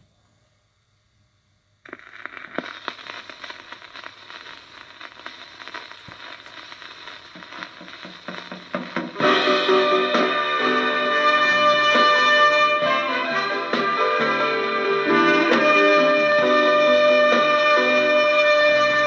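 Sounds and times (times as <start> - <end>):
vinyl record hiss and crackle: 0.0 - 19.0
soul song playing: 7.4 - 19.0.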